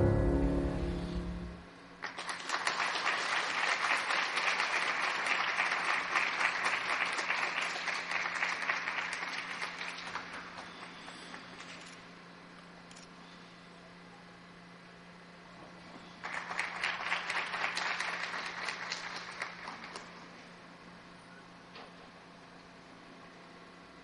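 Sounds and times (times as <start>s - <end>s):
music ending on a chord: 0.0s - 1.7s
audience applauding: 2.0s - 11.7s, 16.2s - 20.3s.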